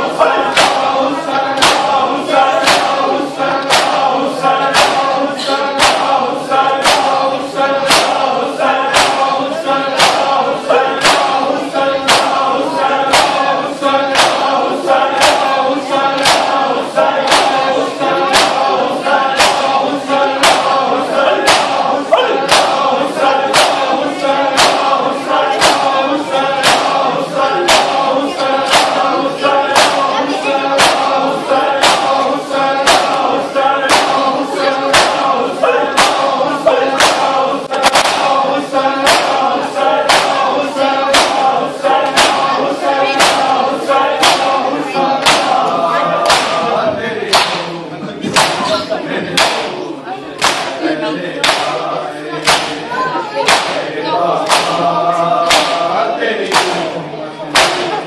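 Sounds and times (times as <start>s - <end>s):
men chanting a lament: 0.0s - 58.0s
hands slapping bare chests: 0.5s - 0.9s, 1.6s - 2.0s, 2.6s - 3.0s, 3.6s - 4.1s, 5.8s - 6.2s, 6.8s - 7.2s, 7.9s - 8.3s, 8.9s - 9.3s, 10.0s - 10.4s, 12.1s - 12.4s, 13.1s - 13.5s, 14.1s - 14.5s, 16.2s - 16.6s, 17.2s - 17.6s, 18.2s - 18.7s, 19.4s - 19.7s, 22.5s - 22.9s, 23.5s - 23.9s, 24.5s - 25.0s, 26.6s - 27.0s, 28.7s - 29.1s, 29.7s - 30.1s, 30.8s - 31.2s, 33.9s - 34.2s, 34.9s - 35.3s, 36.9s - 38.4s, 39.0s - 39.5s, 40.1s - 40.5s, 41.1s - 41.5s, 42.1s - 42.5s, 43.2s - 43.6s, 44.2s - 44.6s, 45.2s - 45.6s, 46.2s - 46.6s, 47.3s - 47.7s, 48.3s - 48.6s, 49.4s - 49.6s, 50.4s - 50.8s, 51.4s - 51.8s, 52.4s - 52.8s, 53.4s - 53.8s, 54.4s - 54.8s, 55.5s - 55.8s, 56.5s - 56.8s, 57.5s - 57.9s.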